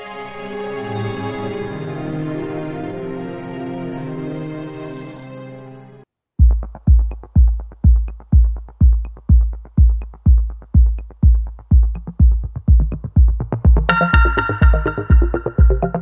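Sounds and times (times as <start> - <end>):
deep kick drum: 6.4 - 16.0
electronic dance music: 6.5 - 16.0.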